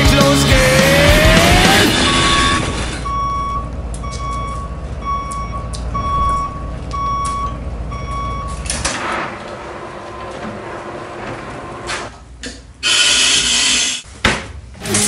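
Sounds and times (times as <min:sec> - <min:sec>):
low engine rumble: 0:00.6 - 0:08.8
reversing alarm beeping: 0:01.7 - 0:08.6.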